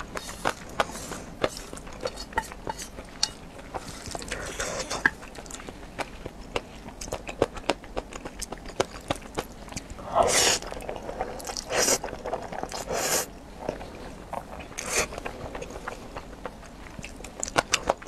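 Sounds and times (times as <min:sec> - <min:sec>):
chewing and mouth clicks: 0:00.0 - 0:12.9, 0:13.6 - 0:18.0
slurping noodles: 0:10.0 - 0:13.3.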